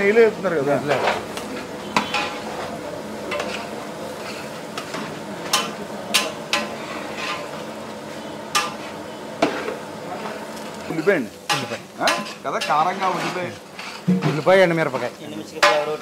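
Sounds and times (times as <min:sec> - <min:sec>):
food sizzling: 0:00.0 - 0:16.0
metal spatula scraping a pot: 0:03.3 - 0:04.9, 0:06.5 - 0:07.6, 0:11.5 - 0:15.1.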